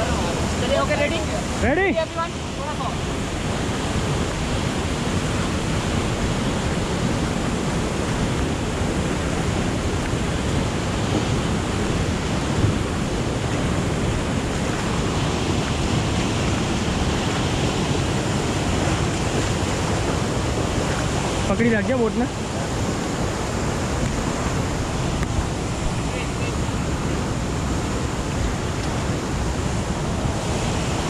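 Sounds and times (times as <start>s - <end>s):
river rapids rushing over rocks: 0.0s - 31.0s.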